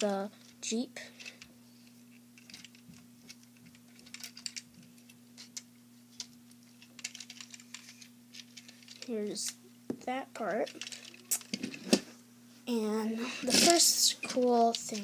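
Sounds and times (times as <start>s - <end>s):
low electrical hum: 0.0s - 15.0s
plastic toy parts clicking: 3.9s - 4.6s, 6.9s - 9.1s, 10.6s - 11.7s.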